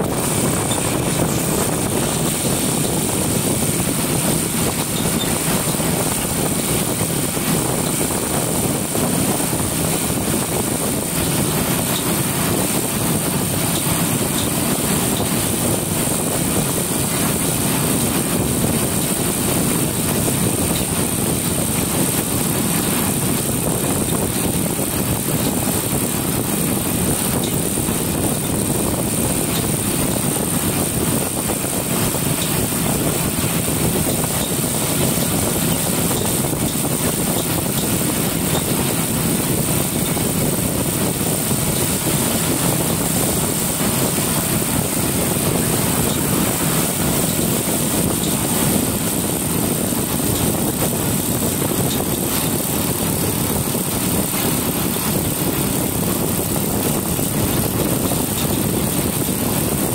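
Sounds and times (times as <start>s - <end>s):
motorcycle engine running: 0.0s - 59.9s
wind rushing over microphone: 0.0s - 59.9s.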